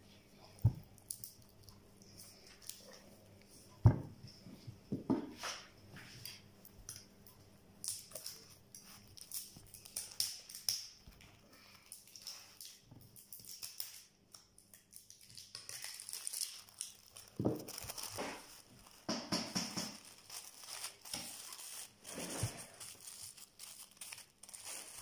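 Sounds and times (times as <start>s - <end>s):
wrapping paper rustling: 7.9s - 14.1s, 14.8s - 25.0s.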